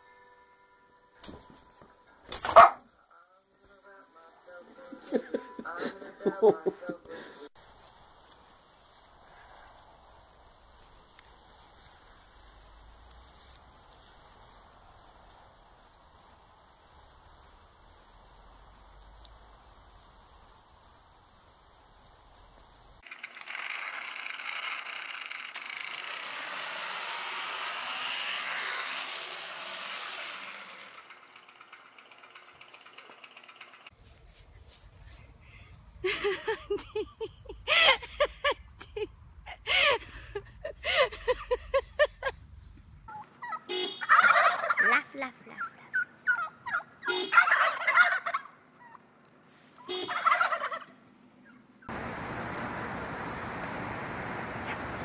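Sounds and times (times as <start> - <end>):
toy motorcycle whirring and rattling: 23.0 - 34.0
short turkey calls: 43.1 - 44.8, 45.9 - 49.0, 49.8 - 50.9
turkeys gobbling: 43.1 - 44.9, 45.9 - 49.0, 49.9 - 50.9.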